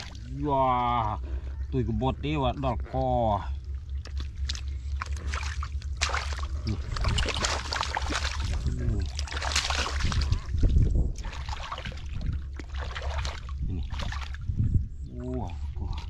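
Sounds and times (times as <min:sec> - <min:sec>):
low rumble: 0:00.0 - 0:16.0
fish thrashing in water: 0:03.6 - 0:14.6
hands splashing in water: 0:04.0 - 0:14.4.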